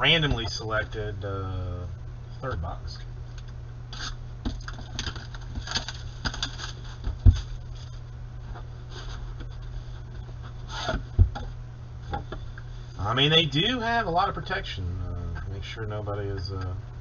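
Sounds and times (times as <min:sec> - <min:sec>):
plastic wrap crinkling: 0:04.6 - 0:08.1.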